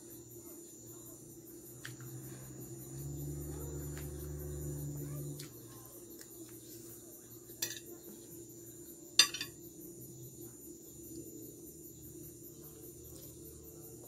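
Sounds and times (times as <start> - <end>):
faint steady hum: 0.0 - 14.0
cutlery clinking on plate: 9.2 - 9.6.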